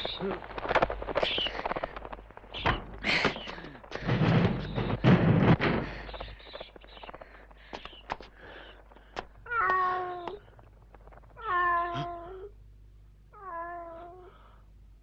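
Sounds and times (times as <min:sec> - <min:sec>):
cat meowing: 0:09.5 - 0:10.4, 0:11.4 - 0:12.5, 0:13.3 - 0:14.4.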